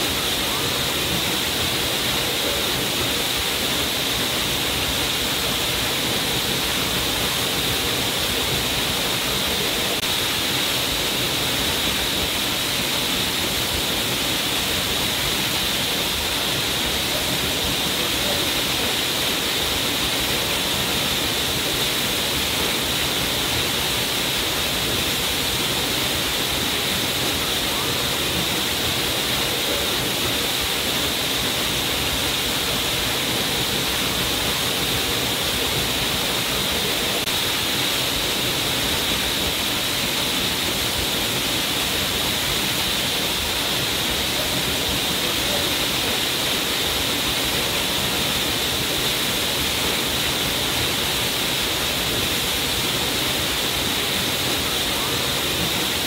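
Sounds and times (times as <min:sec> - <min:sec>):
waterfall pouring onto rocks: 0:00.0 - 0:56.0.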